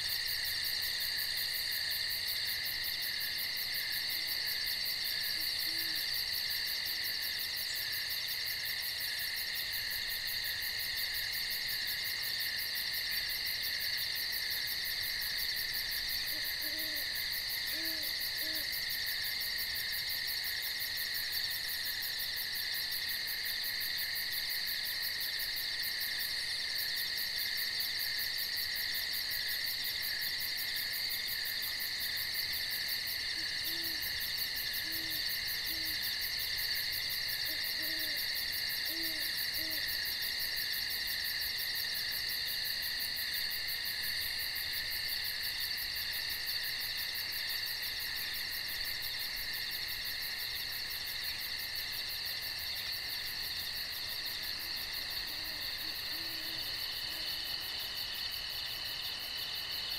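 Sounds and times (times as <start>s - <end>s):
crickets trilling: 0.0s - 59.9s
owl hooting: 16.3s - 17.1s, 17.7s - 18.7s, 33.3s - 34.1s, 34.8s - 36.0s, 37.5s - 38.2s, 38.8s - 39.9s.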